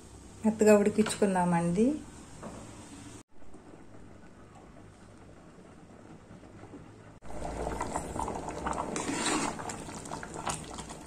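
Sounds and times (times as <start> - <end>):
thick food bubbling and popping: 3.3 - 11.0
ladle stirring thick mix: 7.3 - 11.0.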